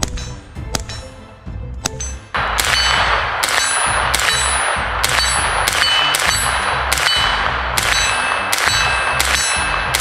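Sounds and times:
metallic clang of steel target: 0:01.8 - 0:10.0
rifle gunshots: 0:02.4 - 0:10.0.

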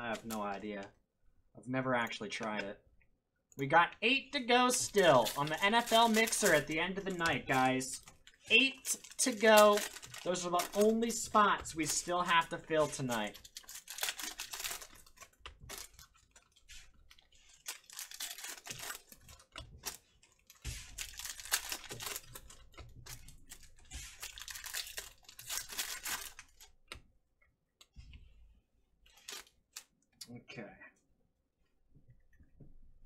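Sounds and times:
foil wrapper crinkling and tearing: 0:04.7 - 0:26.8, 0:29.1 - 0:29.9.

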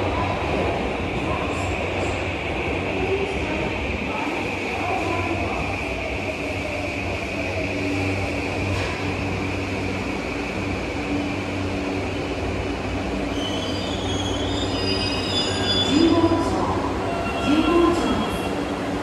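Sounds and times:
squealing wheels and brakes: 0:13.3 - 0:16.4, 0:17.0 - 0:18.6.

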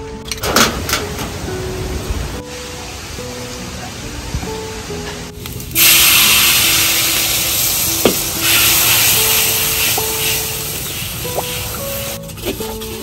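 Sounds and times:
food sizzling in hot oil: 0:05.4 - 0:13.0.

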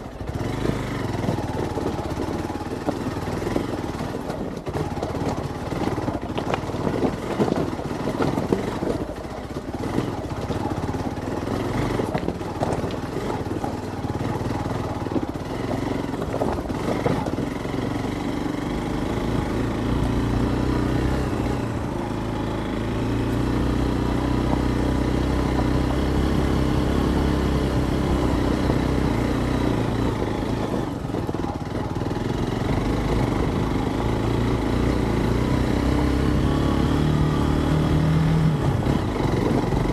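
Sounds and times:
motorcycle engine running: 0:00.0 - 0:39.9
knocks and clatter: 0:00.2 - 0:22.2.

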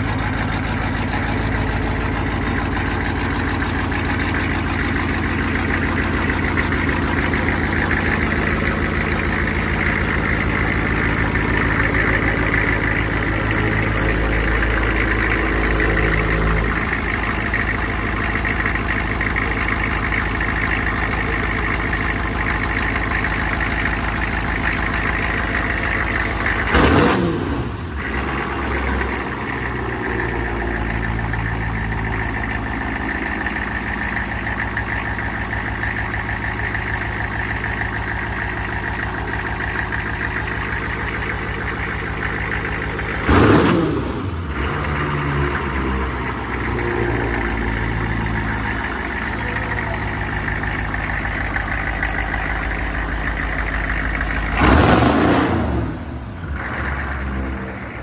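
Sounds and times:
truck engine idling and revving: 0:00.0 - 0:58.0.

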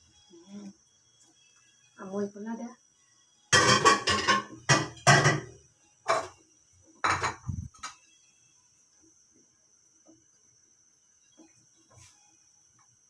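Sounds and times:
metal cookware clanking: 0:03.5 - 0:06.4, 0:07.0 - 0:08.0.

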